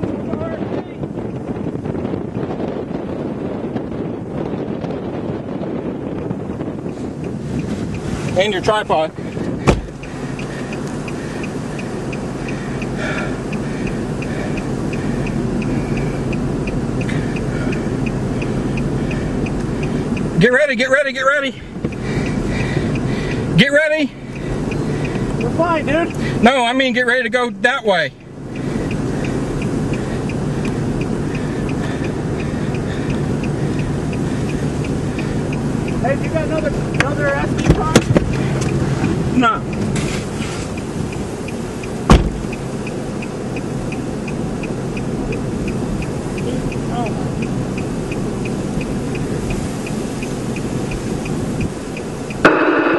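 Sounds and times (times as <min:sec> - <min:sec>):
faint regular ticking: 0:00.0 - 0:52.5
vehicle idling: 0:00.0 - 0:52.9
wind and rumble noise: 0:00.0 - 0:52.9
short high beeps: 0:52.5 - 0:52.9.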